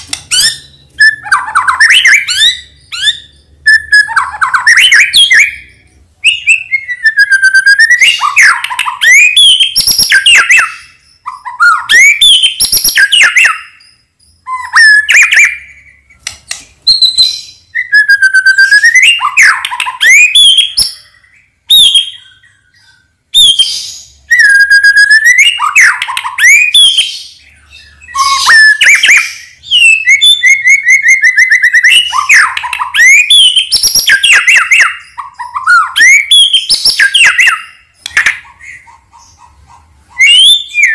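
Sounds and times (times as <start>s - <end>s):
songbird whistles and trills: 0.0s - 40.9s.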